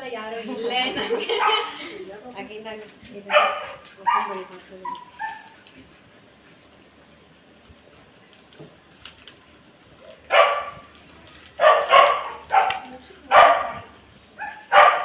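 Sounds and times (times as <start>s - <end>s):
dog barking: 1.3s - 1.8s, 3.3s - 5.5s, 10.2s - 10.8s, 11.6s - 15.0s.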